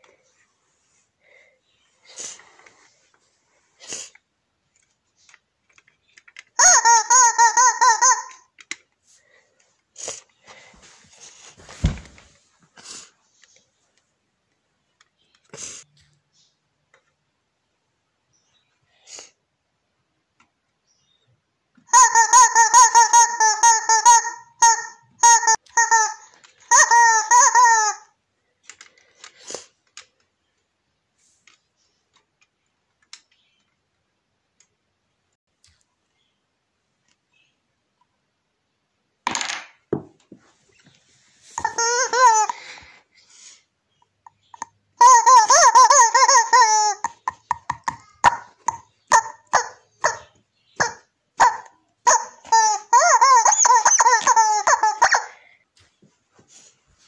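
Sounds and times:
rubber chicken toy squawking: 6.6s - 8.5s, 21.9s - 28.2s, 41.6s - 42.8s, 44.6s - 55.5s.

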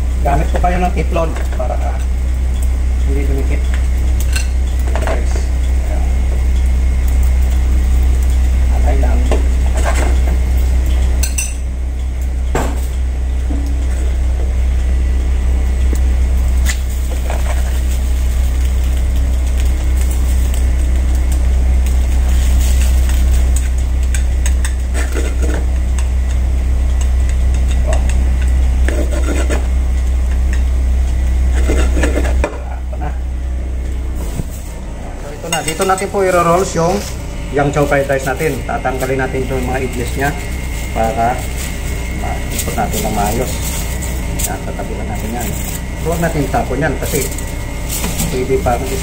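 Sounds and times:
kitchen equipment rumble: 0.0s - 49.0s
chopsticks scraping frying pan: 24.1s - 26.0s, 28.8s - 29.8s, 31.5s - 32.6s.

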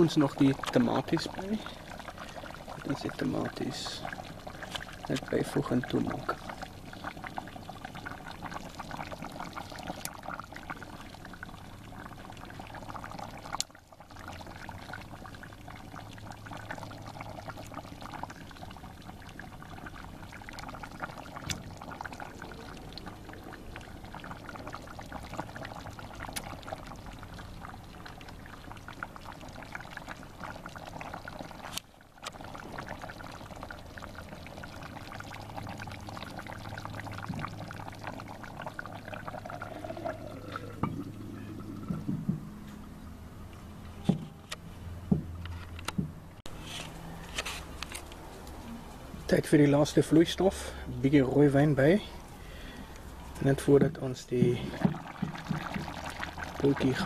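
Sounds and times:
stew bubbling: 0.0s - 44.5s, 46.4s - 57.0s.

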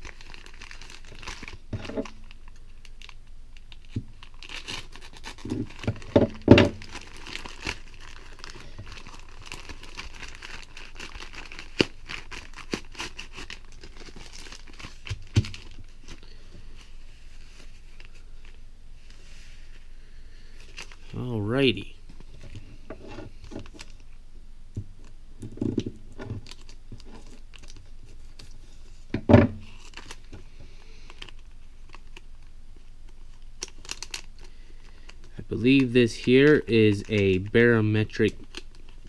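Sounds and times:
plastic mailer tearing: 0.0s - 16.2s, 26.3s - 28.5s, 33.3s - 39.0s
plastic bag crinkling: 0.0s - 18.6s, 20.4s - 22.6s, 25.8s - 39.0s.

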